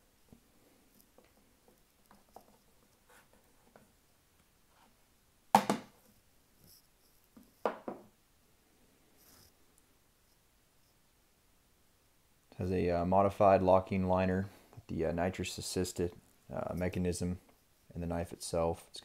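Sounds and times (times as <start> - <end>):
faint rustles and clicks: 0.2 - 5.0, 6.0 - 7.7, 8.9 - 11.2
loud thumps on case: 5.5 - 5.9.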